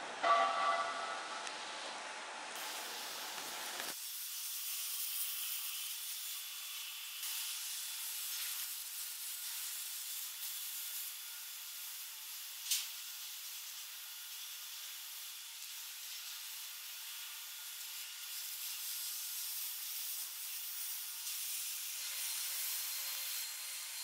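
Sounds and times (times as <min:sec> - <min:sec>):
high-pitched hiss: 0:00.2 - 0:08.8.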